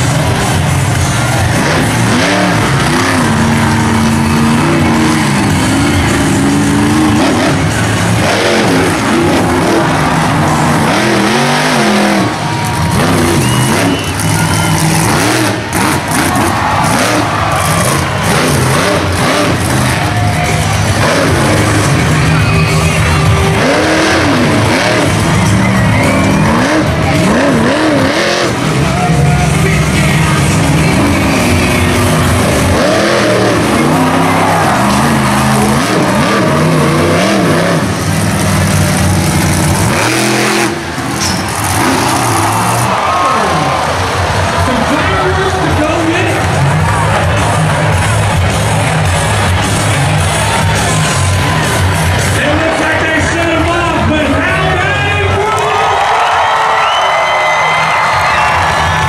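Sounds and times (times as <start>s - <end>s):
truck engine revving: 0.0s - 59.0s
loud music over speakers: 12.2s - 37.0s, 39.5s - 56.4s.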